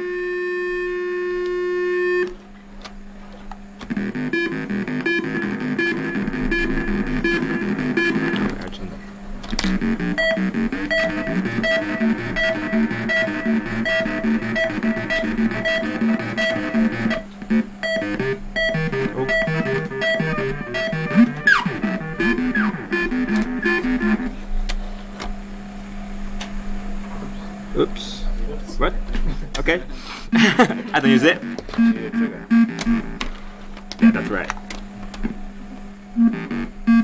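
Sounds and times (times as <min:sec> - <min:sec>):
short stepped synth notes: 0:03.9 - 0:08.6, 0:09.7 - 0:24.4
synth oscillator tone: 0:03.9 - 0:08.6, 0:09.6 - 0:24.4, 0:30.4 - 0:33.2, 0:36.2 - 0:37.0.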